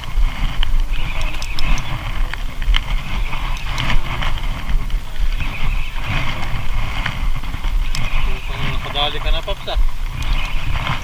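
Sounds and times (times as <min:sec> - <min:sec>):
wind buffeting microphone: 0:00.0 - 0:11.0
light clicks: 0:00.6 - 0:02.8.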